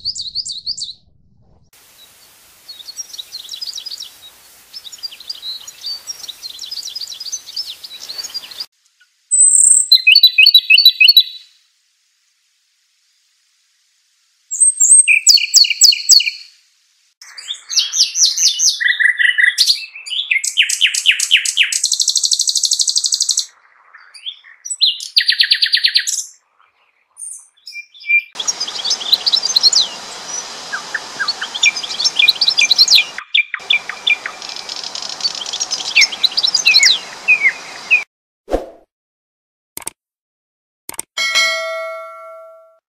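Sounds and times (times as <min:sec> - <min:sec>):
songbird trills and chirps: 0:00.0 - 0:01.1, 0:02.0 - 0:11.6, 0:14.5 - 0:16.5, 0:17.2 - 0:38.0
steady background hiss: 0:01.8 - 0:09.6, 0:11.4 - 0:15.0, 0:16.4 - 0:17.2, 0:28.4 - 0:38.0.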